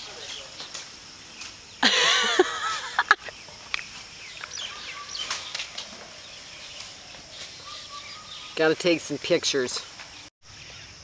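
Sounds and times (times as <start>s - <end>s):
faint bird chirps: 3.2s - 8.7s.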